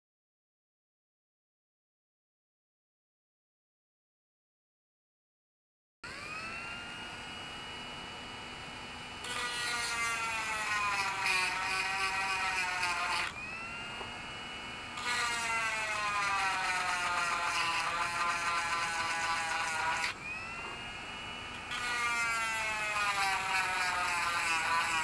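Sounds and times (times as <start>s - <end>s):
rotary tool motor whine: 6.0s - 25.0s.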